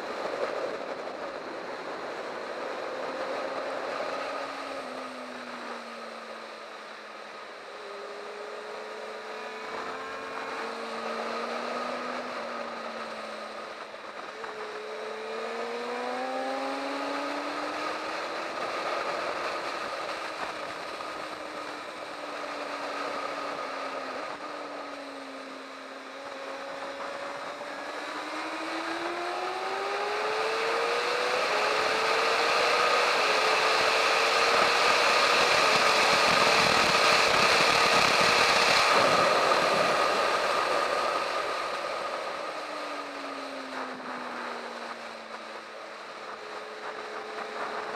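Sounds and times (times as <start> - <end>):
motorcycle engine at speed: 0.0 - 47.9
wind rushing over microphone: 26.1 - 47.9.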